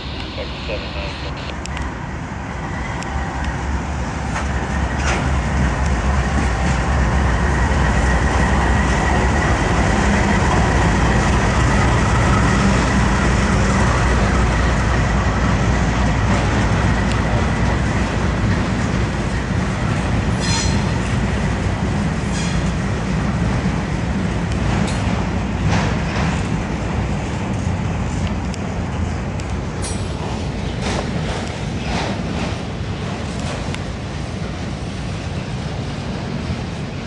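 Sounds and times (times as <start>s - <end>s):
locomotive engines droning: 0.0s - 37.0s
wheels clattering over rails: 29.8s - 34.0s.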